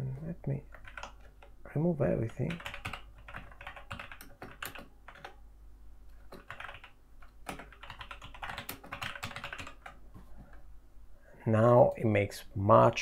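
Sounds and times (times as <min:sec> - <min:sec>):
typing on a keyboard: 0:00.7 - 0:01.6, 0:02.2 - 0:05.4, 0:06.3 - 0:10.0.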